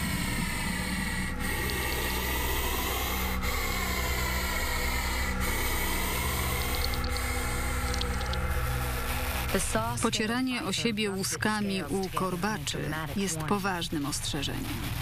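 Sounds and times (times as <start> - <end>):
snake hissing: 0.0 - 9.8.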